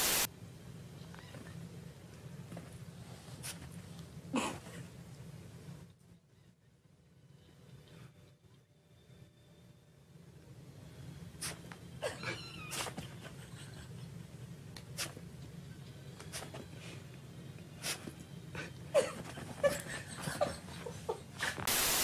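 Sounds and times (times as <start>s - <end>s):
squeaky animal cries: 12.0s - 13.0s.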